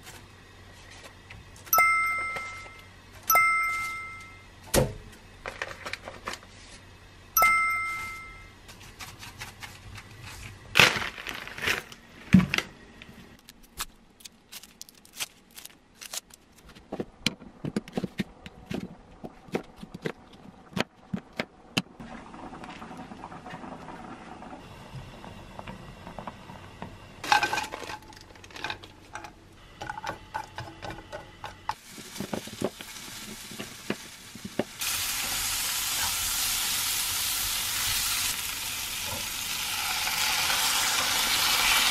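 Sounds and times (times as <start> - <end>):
kitchen clatter: 27.2 - 32.8
food sizzling in a pan: 31.8 - 41.9.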